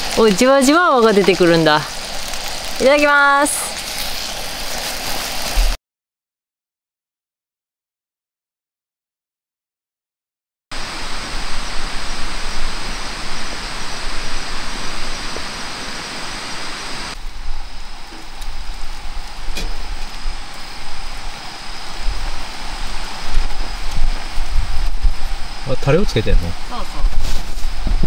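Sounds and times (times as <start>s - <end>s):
high insect trill: 0.0s - 5.7s, 10.8s - 28.0s
steady rushing noise: 10.7s - 28.0s.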